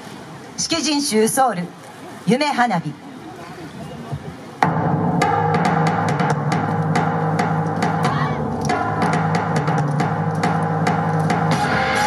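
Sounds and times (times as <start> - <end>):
drum-led dance music: 4.6 - 12.0.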